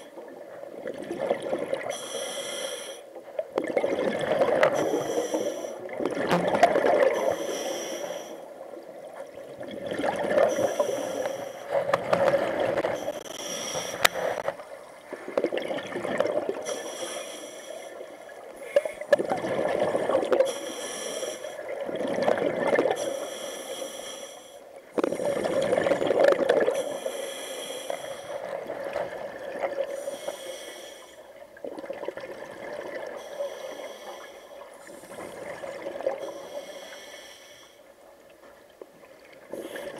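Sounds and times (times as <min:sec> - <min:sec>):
regulator hissing inhale: 0:01.9 - 0:03.1, 0:04.8 - 0:05.8, 0:07.2 - 0:08.5, 0:10.5 - 0:11.7, 0:13.0 - 0:14.4, 0:16.6 - 0:18.0, 0:20.4 - 0:21.6, 0:23.0 - 0:25.4, 0:26.7 - 0:28.5, 0:29.9 - 0:31.3, 0:33.1 - 0:35.5, 0:36.2 - 0:37.9
gurgling exhaled bubbles: 0:03.6 - 0:05.1, 0:05.8 - 0:07.4, 0:09.4 - 0:11.0, 0:15.1 - 0:16.6, 0:19.1 - 0:20.5, 0:21.6 - 0:23.0, 0:25.0 - 0:26.8.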